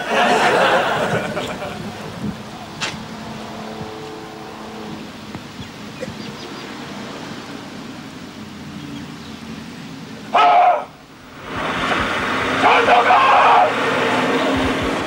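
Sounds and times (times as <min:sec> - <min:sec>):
rain hissing on wet road: 0:11.0 - 0:15.0.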